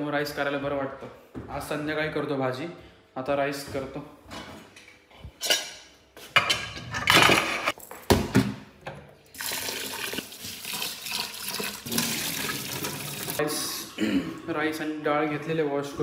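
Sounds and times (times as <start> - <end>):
pots and containers clattering: 6.4 - 7.8
tap running water: 9.3 - 13.4.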